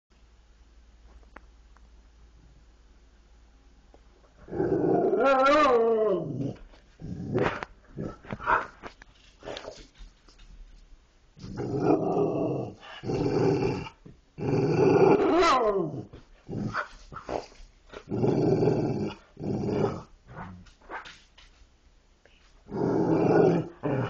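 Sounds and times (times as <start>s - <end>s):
dogs growling: 11.4s - 20.7s, 22.7s - 24.0s.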